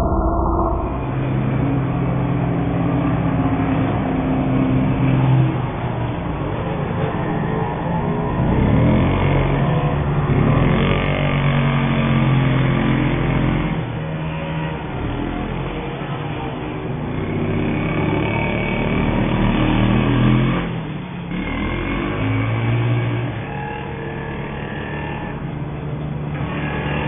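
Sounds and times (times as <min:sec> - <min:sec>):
small two-stroke engines revving: 0:08.2 - 0:27.0.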